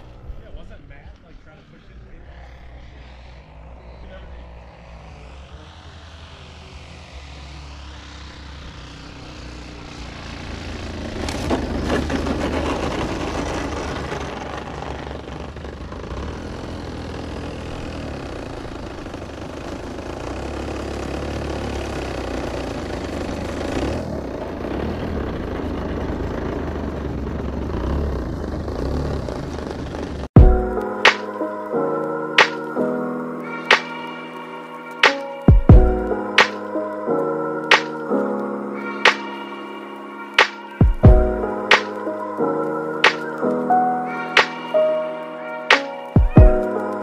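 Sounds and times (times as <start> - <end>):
model airplane engine and propeller: 0.0 - 30.5.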